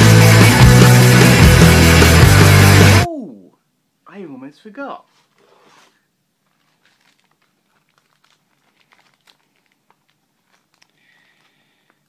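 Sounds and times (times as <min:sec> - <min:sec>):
plastic wrapping crinkling: 0:05.1 - 0:12.0.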